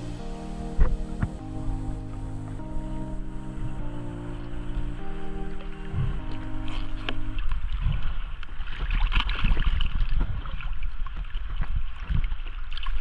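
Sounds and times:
low rumble of water and wind: 0.0s - 13.0s
water splashing against boat hull: 6.0s - 13.0s.

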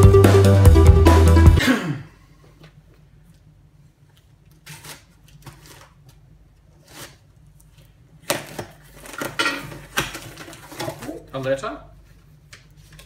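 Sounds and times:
cardboard tearing and rustling: 4.6s - 6.0s, 8.3s - 11.3s
packing tape being cut: 4.6s - 6.0s.

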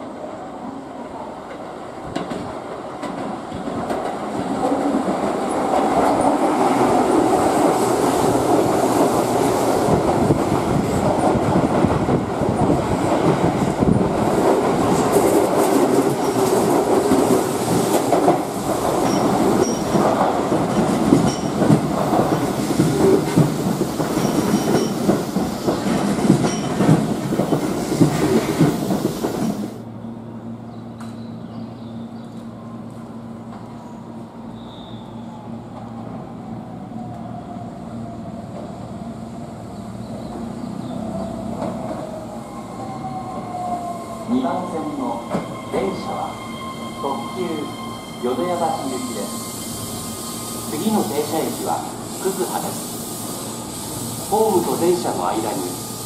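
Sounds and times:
train wheels clattering over rail joints: 12.8s - 29.7s.

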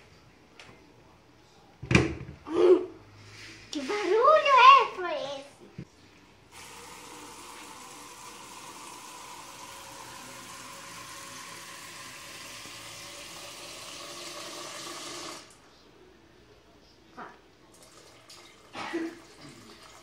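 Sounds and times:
tap water pouring into metal pot: 6.5s - 15.6s, 17.7s - 20.0s.

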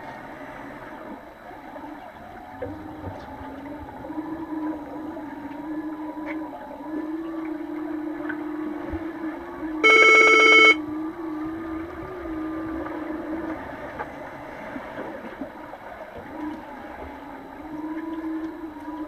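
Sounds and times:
underwater hum: 0.0s - 19.0s
loud buzzing horn: 9.8s - 10.8s.

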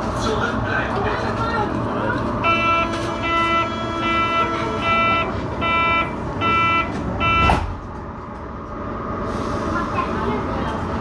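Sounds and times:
train door warning beeps: 2.4s - 7.7s
train doors thudding shut: 6.8s - 8.0s.

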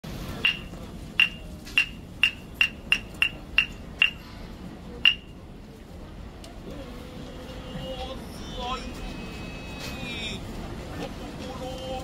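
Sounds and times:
wooden clappers clacking: 0.4s - 4.2s.

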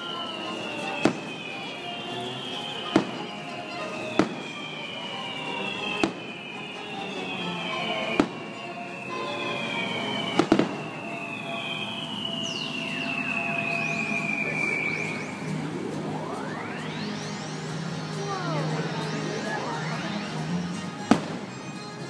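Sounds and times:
firework shells bursting: 0.0s - 14.4s
music playing: 0.0s - 22.0s.

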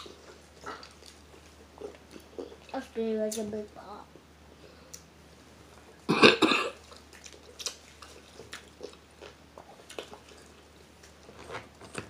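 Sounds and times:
wet chewing smacks and clicks: 6.8s - 12.0s.

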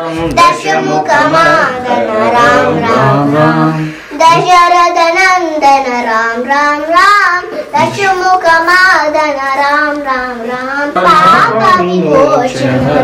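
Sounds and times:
high voice singing slow melody: 0.0s - 13.0s
singer breath: 3.7s - 4.2s.

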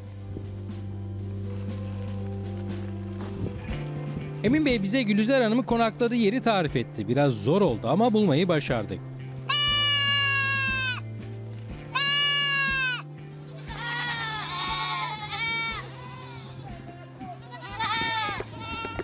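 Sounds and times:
music with low held notes: 0.0s - 19.0s
goats bleating: 9.5s - 11.0s, 11.9s - 19.0s.

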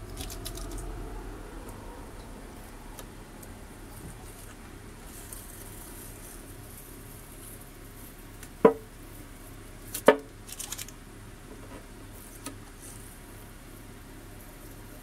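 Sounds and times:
tape peeling crackles: 0.1s - 0.9s, 9.8s - 11.0s.

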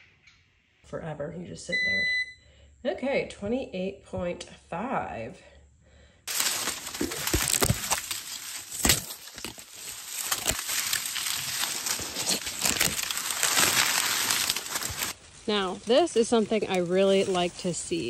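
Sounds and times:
corn stalks snapping: 6.3s - 17.5s
dry corn leaves rustling: 6.3s - 18.0s.

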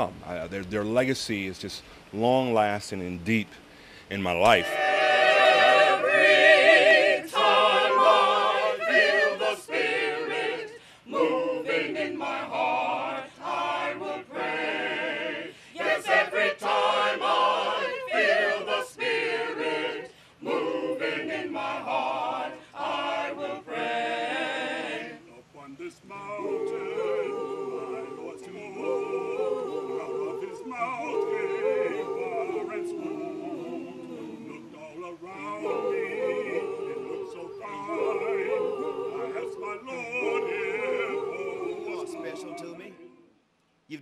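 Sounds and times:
mixed choir singing: 4.4s - 43.4s.

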